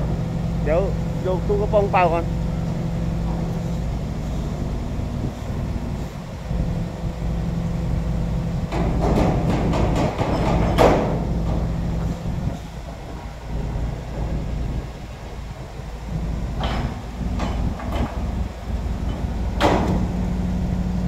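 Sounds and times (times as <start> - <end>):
diesel engine idling: 0.0 - 10.0, 11.0 - 21.0
metallic clattering and rattling: 8.7 - 11.7.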